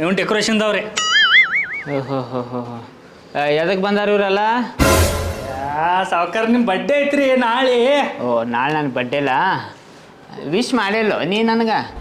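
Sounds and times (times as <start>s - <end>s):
cartoon boing: 1.0s - 2.1s.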